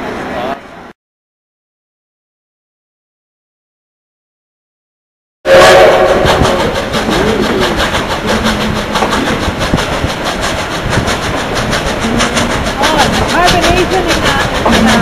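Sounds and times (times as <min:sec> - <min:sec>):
train wheels clattering over rails: 0:05.5 - 0:15.0.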